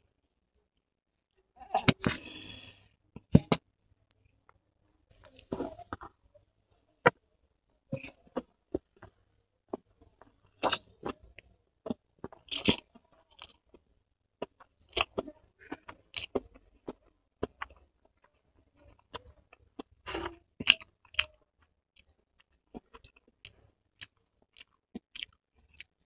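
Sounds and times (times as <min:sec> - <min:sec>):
wet chewing and lip smacks: 0:22.0 - 0:26.0.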